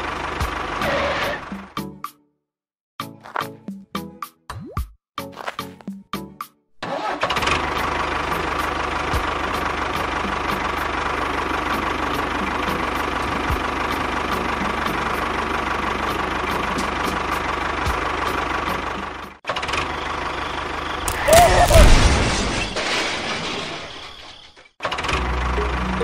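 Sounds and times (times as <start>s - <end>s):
engine rumbling: 6.8s - 26.0s.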